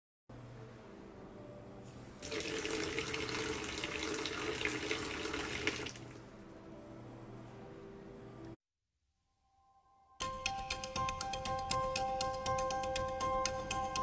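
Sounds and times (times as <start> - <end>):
tap water running into sink: 2.2 - 6.2.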